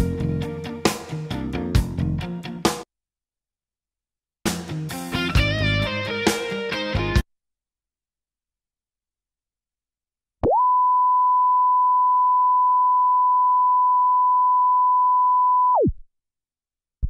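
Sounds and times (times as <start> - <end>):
test tone from tape: 10.4 - 16.0.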